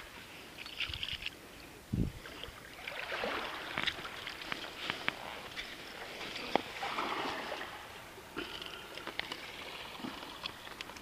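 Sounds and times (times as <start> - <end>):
small waves washing on shore: 0.0 - 11.0.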